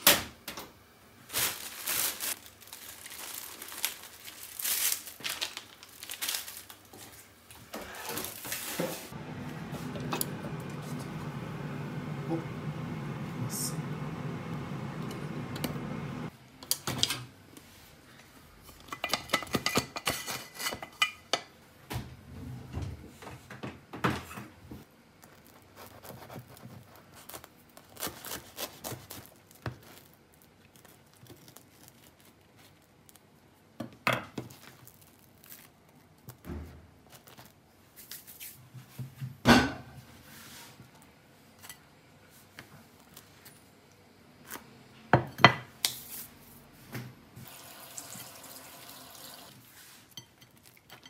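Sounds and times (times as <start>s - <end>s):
steady noise: 9.2s - 16.3s.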